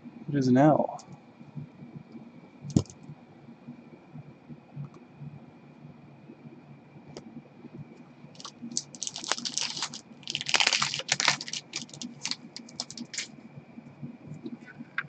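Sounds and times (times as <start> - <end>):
cards rustling and clicking: 8.4 - 13.3.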